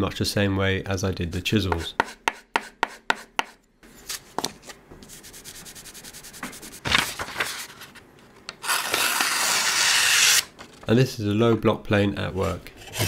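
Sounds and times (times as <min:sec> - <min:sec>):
paper rustling: 0:06.3 - 0:09.4.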